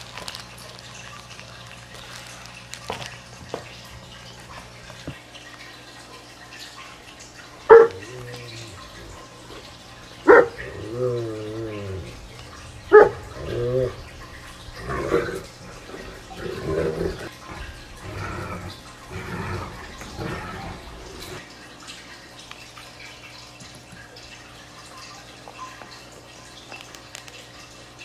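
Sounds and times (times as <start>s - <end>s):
dog whimpering: 7.7s - 21.4s
dog yelping and whining: 7.7s - 21.4s.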